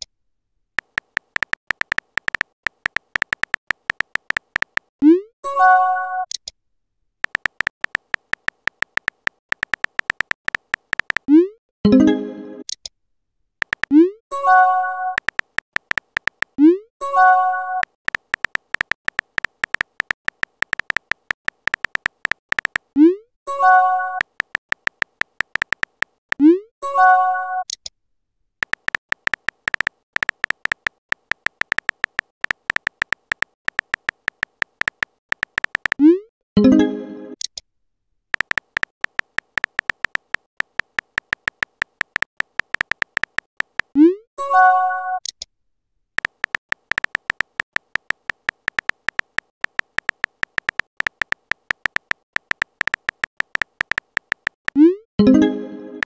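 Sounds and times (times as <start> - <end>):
phone keyboard taps: 0.8 - 4.9, 7.2 - 11.3, 13.6 - 14.0, 15.2 - 16.6, 17.8 - 22.9, 24.2 - 26.2, 28.6 - 36.0, 38.4 - 44.0, 46.2 - 54.8.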